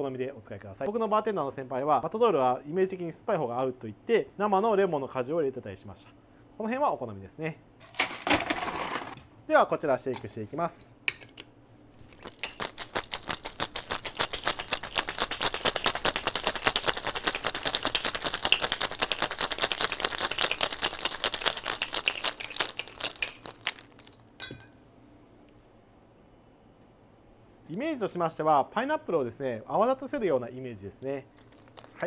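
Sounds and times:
ice rattling in cocktail shaker: 12.1s - 24.2s, 31.4s - 32.0s.

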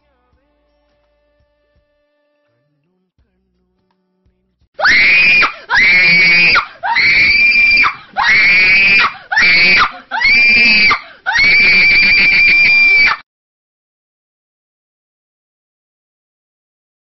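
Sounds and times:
loud high-pitched screams: 4.8s - 13.2s.

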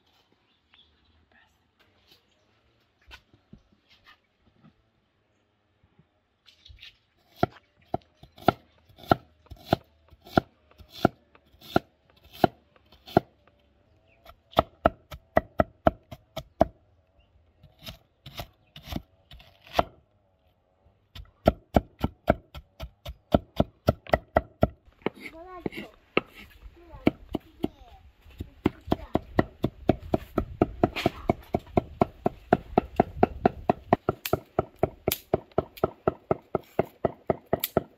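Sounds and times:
cleaver chopping on wooden board: 7.4s - 13.3s, 21.4s - 27.7s, 28.4s - 37.9s.

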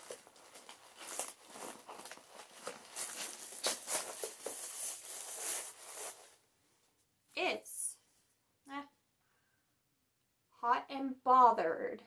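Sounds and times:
packaging rustling and crinkling: 0.0s - 6.4s.

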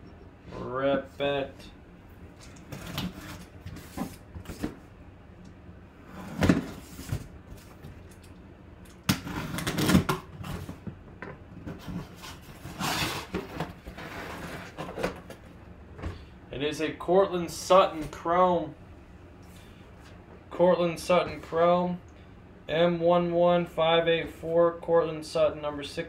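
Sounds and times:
cardboard flaps scraping and rustling: 11.7s - 15.4s.

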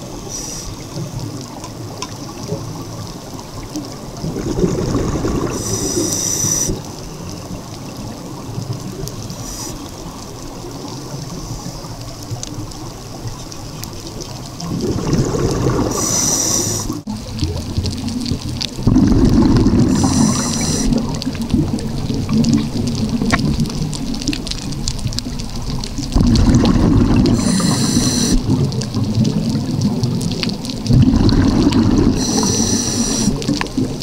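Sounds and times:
steady underwater rush: 0.0s - 34.0s
diver exhaling bubbles: 4.2s - 6.9s, 14.6s - 17.0s, 18.8s - 23.8s, 26.1s - 30.0s, 30.8s - 34.0s.

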